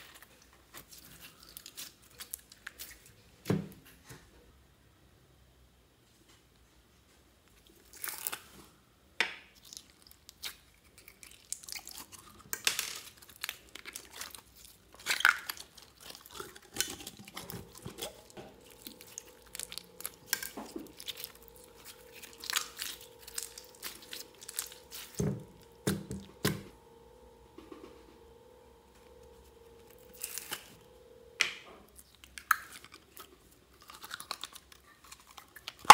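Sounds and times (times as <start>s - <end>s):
slime squelching: 0.0s - 3.2s, 9.5s - 26.7s, 31.9s - 35.9s.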